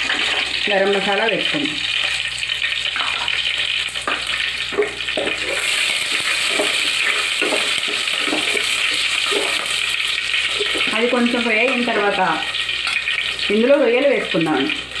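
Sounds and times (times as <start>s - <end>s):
chillies sizzling in hot oil: 0.0s - 15.0s
wooden spatula scraping a pot: 4.7s - 10.9s.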